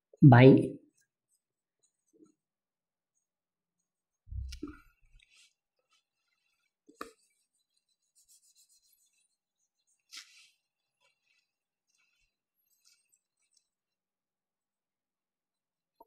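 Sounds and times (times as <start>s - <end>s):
duster rubbing on whiteboard: 6.4s - 12.2s
marker writing on whiteboard: 6.8s - 11.4s.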